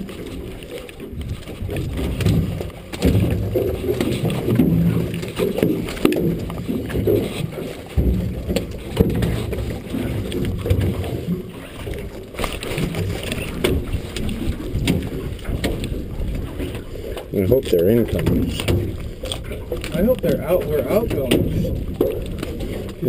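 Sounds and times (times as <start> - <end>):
muffled knocks and rustling of net: 1.4 - 16.8.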